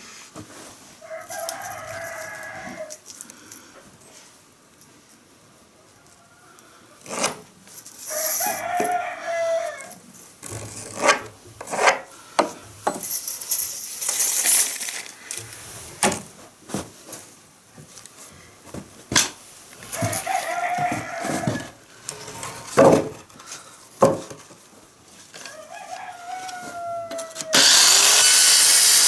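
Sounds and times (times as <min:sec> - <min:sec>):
rooster crowing: 0:01.0 - 0:03.0, 0:08.1 - 0:10.0, 0:19.9 - 0:21.8, 0:25.4 - 0:27.6.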